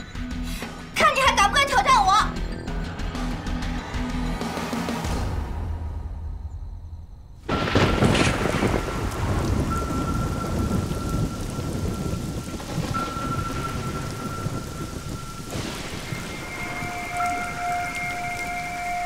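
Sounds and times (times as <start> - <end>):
heavy rain: 7.4 - 19.0
thunder clap: 7.4 - 19.0.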